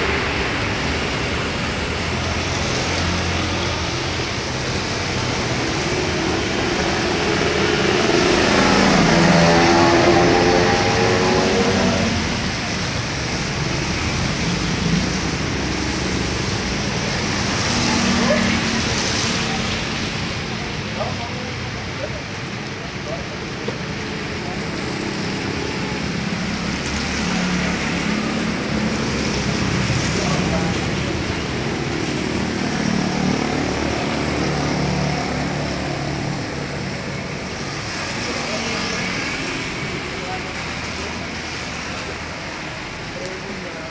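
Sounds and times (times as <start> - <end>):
passing vehicles rushing: 0.0 - 43.9
traffic noise: 0.0 - 43.9.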